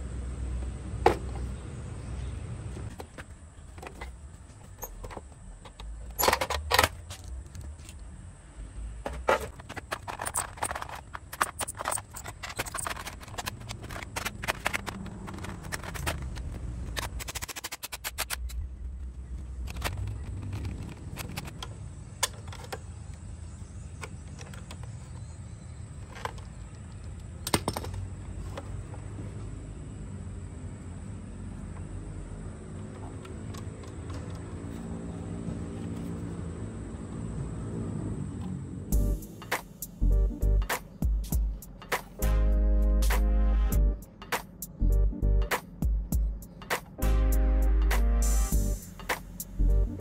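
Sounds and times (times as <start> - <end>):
plastic parts clicking and clattering: 2.9 - 8.0, 9.0 - 23.2, 23.9 - 29.0
screwdriver turning screws: 9.5 - 18.6.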